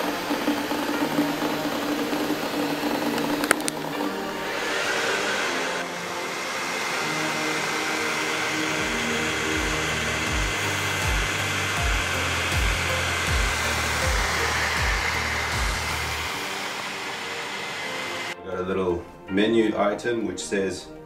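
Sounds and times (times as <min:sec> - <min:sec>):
cooling fan hiss and whine: 0:00.0 - 0:18.4
music with bass beat: 0:08.8 - 0:16.4.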